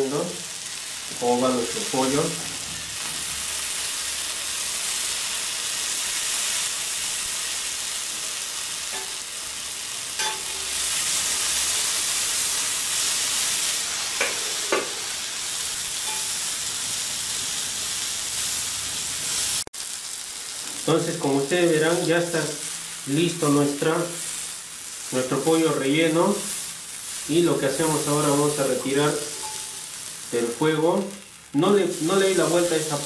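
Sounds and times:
meat sizzling on a grill: 0.0s - 33.0s
metal utensils tapping grill: 8.9s - 9.2s, 10.2s - 10.7s, 14.2s - 15.1s, 16.0s - 16.4s, 29.3s - 29.8s.

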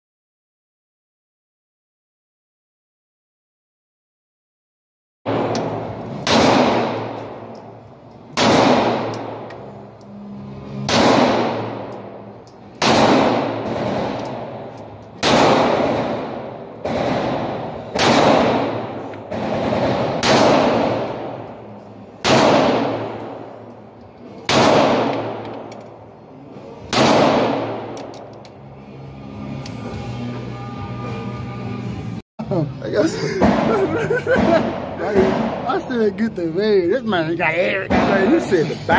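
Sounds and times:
pistol shots echoing indoors: 5.3s - 7.7s, 8.3s - 9.8s, 10.8s - 21.6s, 22.2s - 23.6s, 24.4s - 25.9s, 26.8s - 28.2s.

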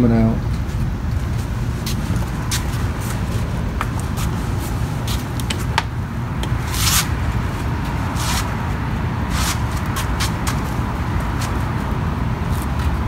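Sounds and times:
steady low rumble: 0.0s - 13.0s
short rubbing scrapes: 6.6s - 7.1s, 8.1s - 8.6s, 9.3s - 10.7s.

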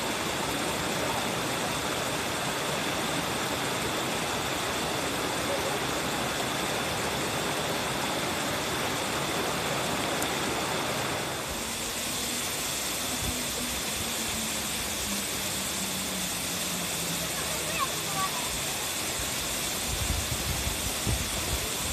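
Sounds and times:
small cascade splashing over rocks: 0.0s - 21.9s
waterfall rushing into a pool: 0.0s - 21.9s.

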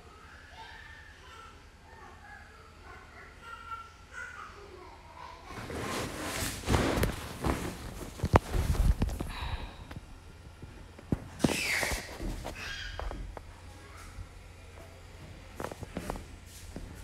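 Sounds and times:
fabric rustling: 5.6s - 9.4s.

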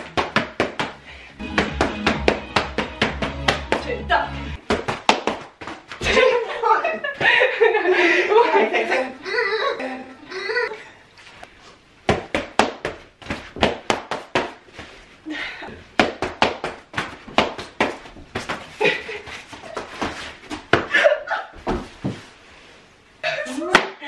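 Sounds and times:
boxing gloves smacking mitts: 0.0s - 3.8s, 4.6s - 6.1s, 12.0s - 14.6s.

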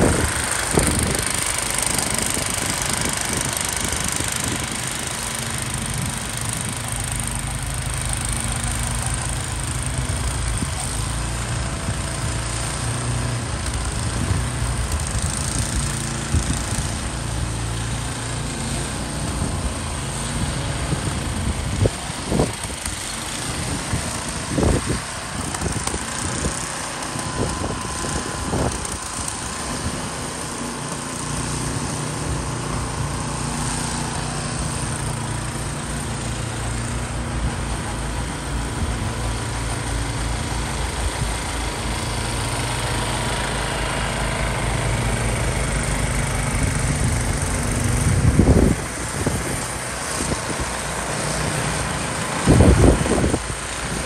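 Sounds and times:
wind buffeting microphone: 0.0s - 1.5s, 46.6s - 50.8s, 52.4s - 54.0s
snow blowers running: 0.0s - 54.0s.

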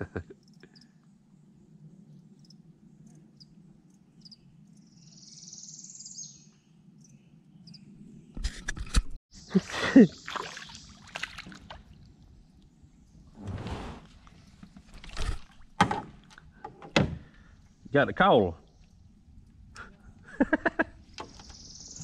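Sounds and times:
fish splashing in water: 10.1s - 12.1s.

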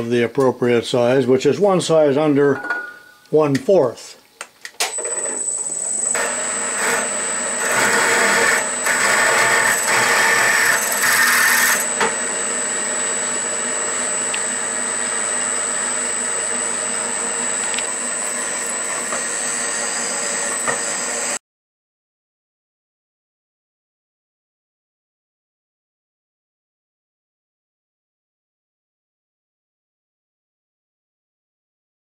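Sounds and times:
steady high whine: 4.8s - 21.4s
drill press cutting steel: 4.9s - 21.4s.

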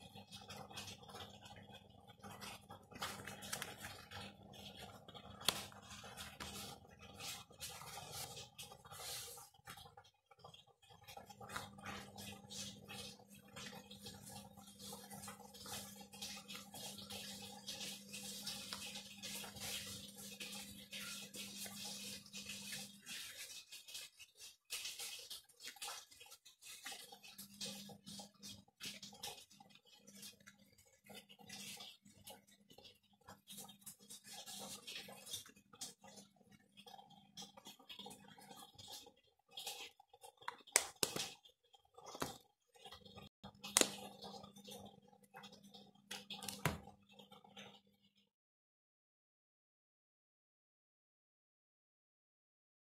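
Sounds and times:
paper and card rustling: 2.9s - 4.2s, 5.3s - 9.4s.

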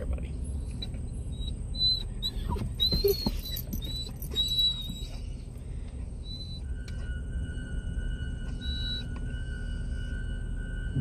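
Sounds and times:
car cabin road rumble: 0.0s - 11.0s
dog whining: 0.4s - 5.4s, 6.2s - 7.2s, 8.2s - 9.2s.

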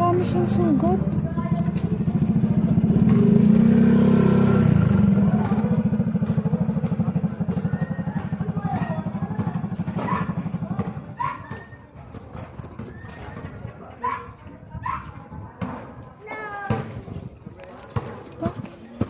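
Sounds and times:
small motorcycle engine running: 0.0s - 13.1s.

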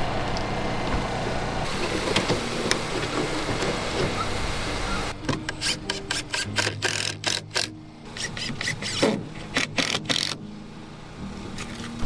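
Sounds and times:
faint low engine hum: 0.0s - 6.0s, 7.7s - 12.0s
hammer nailing wood: 5.3s - 10.4s.

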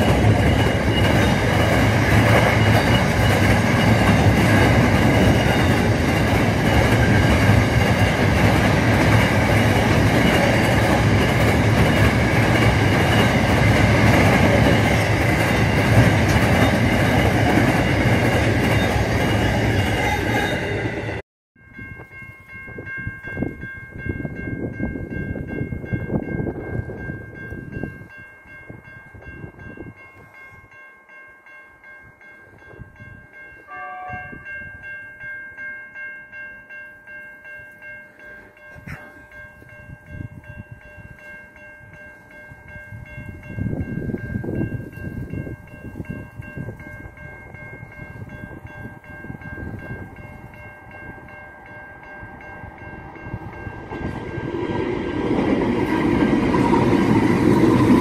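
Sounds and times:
diesel freight train rumble: 0.0s - 21.2s, 43.3s - 58.0s
level crossing warning bells: 0.0s - 58.0s.

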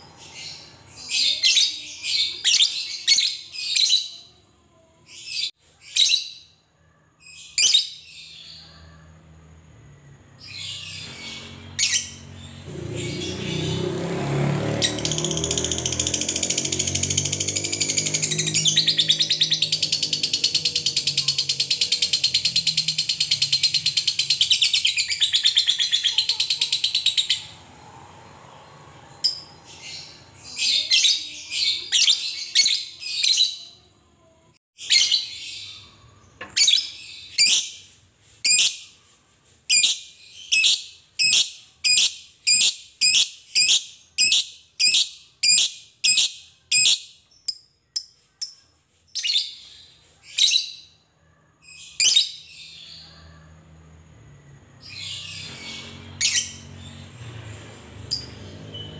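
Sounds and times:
high-pitched bird calls: 10.4s - 27.8s.

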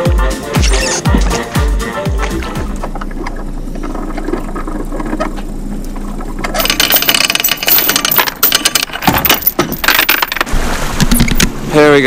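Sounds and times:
anchor chain rattling and clanking: 6.0s - 10.5s.

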